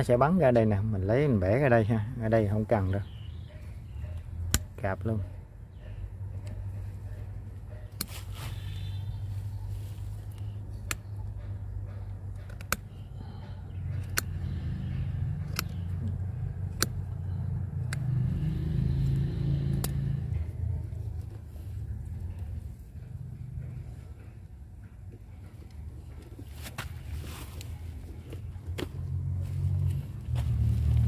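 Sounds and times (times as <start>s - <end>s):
cutter snapping wood: 4.5s - 4.8s.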